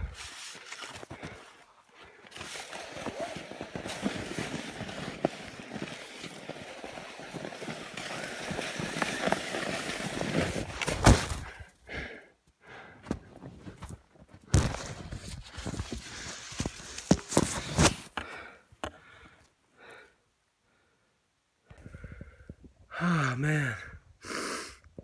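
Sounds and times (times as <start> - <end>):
hard breathing: 0.0 - 4.5, 11.4 - 13.3, 18.2 - 22.6
skis crunching through snow: 0.0 - 11.5, 14.5 - 18.1.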